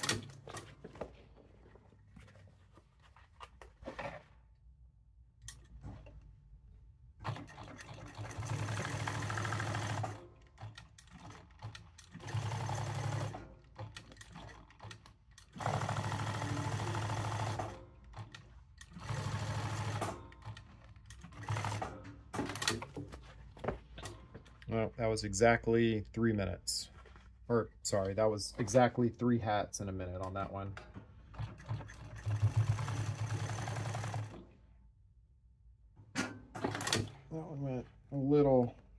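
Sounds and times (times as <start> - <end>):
industrial sewing machine stitching: 0.0 - 0.6, 7.2 - 22.9, 31.3 - 34.6, 36.6 - 37.2.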